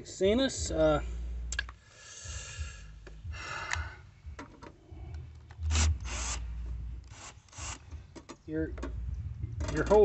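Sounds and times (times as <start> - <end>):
cordless drill bursts: 5.7 - 6.4, 7.1 - 7.8.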